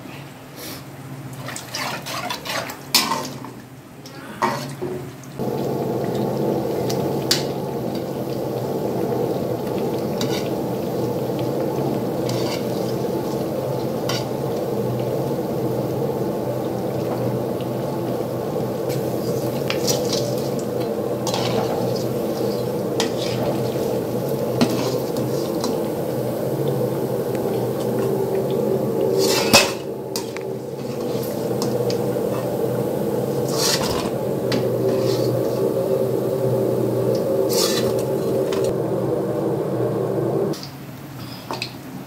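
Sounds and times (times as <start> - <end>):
low steady hum: 5.4 - 40.6
metal ladle scraping steel pan: 12.2 - 12.8, 37.5 - 38.0.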